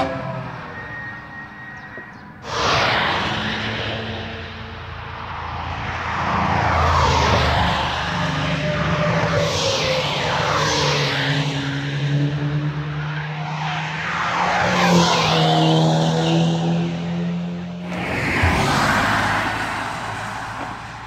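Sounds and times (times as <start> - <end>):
fast car engines running: 5.4 - 21.0.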